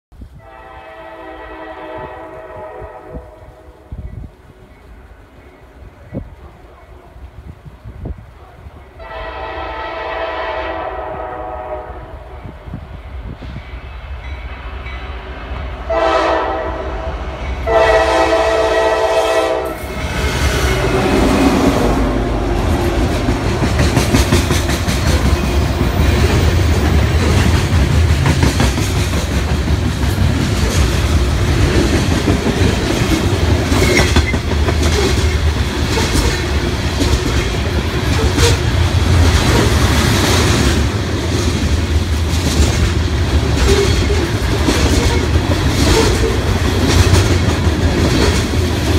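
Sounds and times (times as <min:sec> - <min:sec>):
train horn blasts: 0:00.4 - 0:04.0, 0:09.0 - 0:12.6, 0:15.8 - 0:23.3
locomotives rumbling past: 0:09.0 - 0:48.9
freight train wheel clatter: 0:22.6 - 0:48.9.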